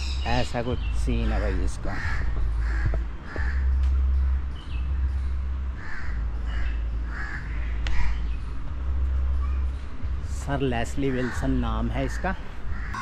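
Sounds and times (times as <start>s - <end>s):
steady low rumble: 0.0s - 10.8s
crows cawing: 1.4s - 3.8s, 5.8s - 8.3s, 11.0s - 13.0s.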